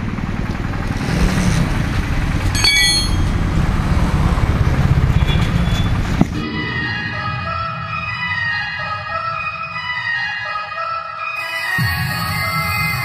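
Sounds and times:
road traffic rumble: 0.0s - 10.9s
metallic clink and ring: 2.5s - 3.4s
music: 6.4s - 13.0s.

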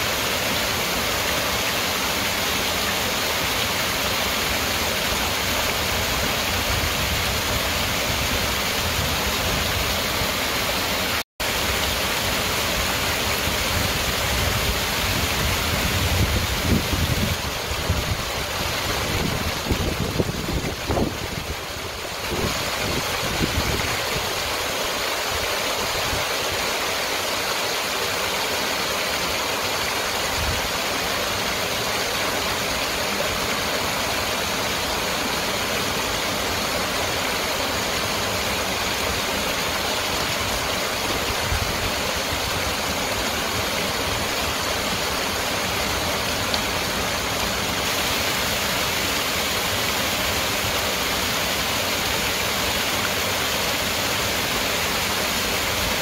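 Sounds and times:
small waterfall splashing: 0.0s - 56.0s.

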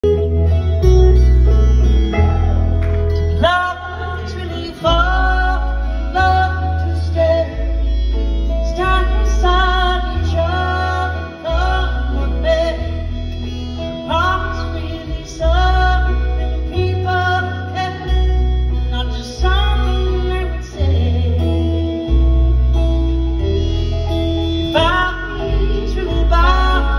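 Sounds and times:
country band playing live: 0.0s - 26.9s
upright bass line: 0.0s - 26.9s
female lead vocal: 3.3s - 22.0s, 24.7s - 26.9s.

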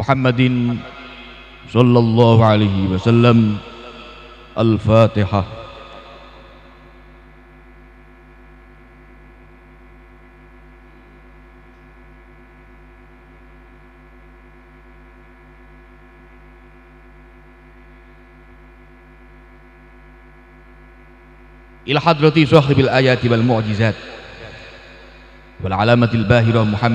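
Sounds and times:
electronic hum of held tones: 0.0s - 26.9s.

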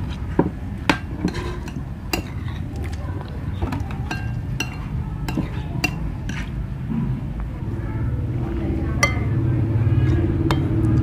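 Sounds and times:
cutlery clinking against dishes: 0.4s - 2.7s, 3.6s - 6.6s, 9.0s - 9.4s.

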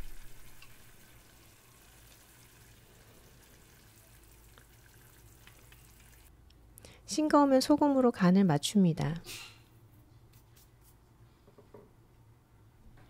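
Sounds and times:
beef sizzling in broth: 0.0s - 6.3s.

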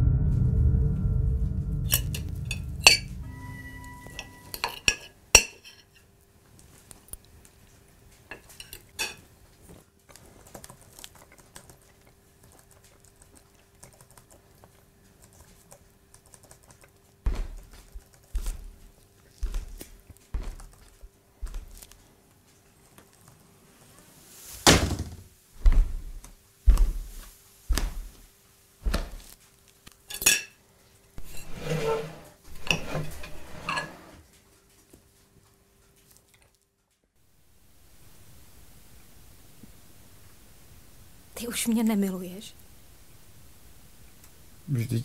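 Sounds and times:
background music: 0.0s - 4.6s
cutlery clinking on a plate: 4.1s - 6.1s, 8.3s - 9.2s, 30.1s - 30.6s
dull knocks: 17.3s - 17.7s
faint steady hum: 37.3s - 45.0s.

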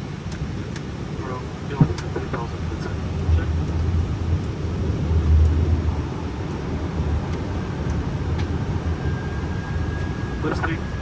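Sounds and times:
low rumble of airflow and engines: 0.0s - 11.0s.

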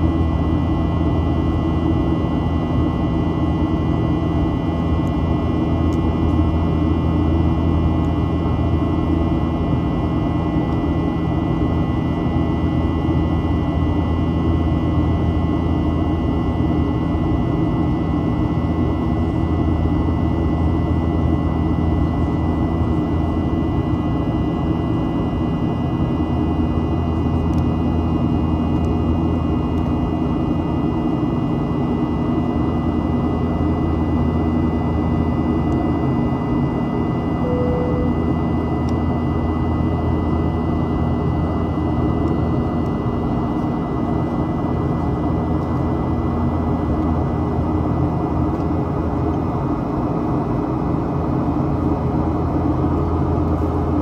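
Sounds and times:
airliner engine drone: 0.0s - 54.0s
steady whining tones: 36.5s - 43.2s.

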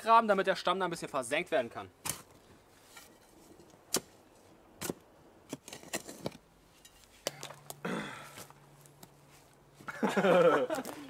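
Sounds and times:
digging tool scraping soil: 2.0s - 7.2s.

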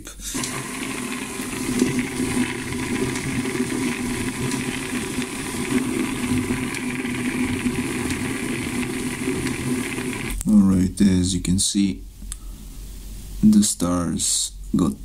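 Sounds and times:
motor-driven roller running: 0.3s - 10.4s
small stars tumbling in bucket: 0.4s - 10.4s.

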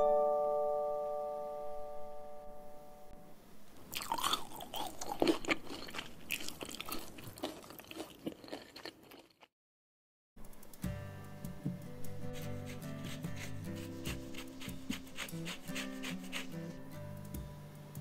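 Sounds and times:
crunchy chewing: 3.9s - 9.5s, 13.1s - 16.6s.

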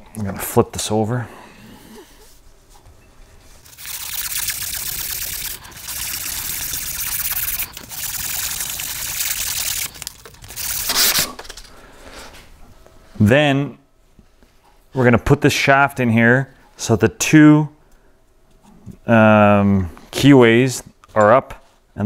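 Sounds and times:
sandpaper rubbing on steel: 3.7s - 11.4s.

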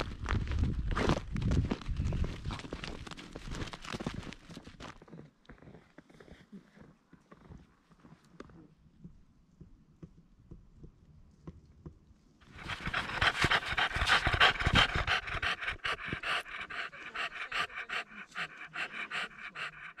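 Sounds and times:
dog panting: 12.4s - 20.0s.

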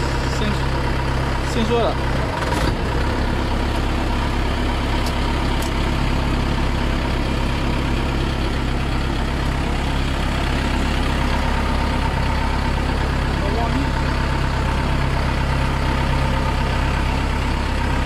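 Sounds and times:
truck engine idling: 0.0s - 18.0s.

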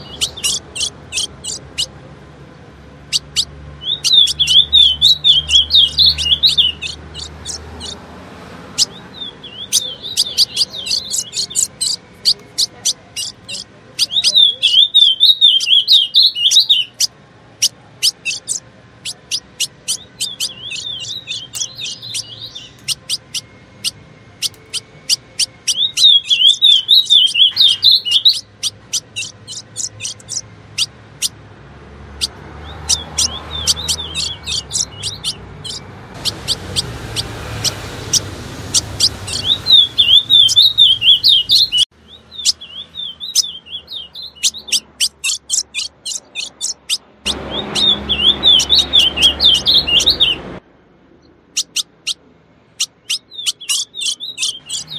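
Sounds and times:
bird warbling twitter: 0.0s - 1.9s, 3.1s - 8.0s, 8.7s - 31.4s, 32.2s - 50.4s, 51.6s - 52.2s, 52.8s - 54.9s
bird chip notes: 0.0s - 2.0s, 3.1s - 8.0s, 8.7s - 31.4s, 32.2s - 41.8s.

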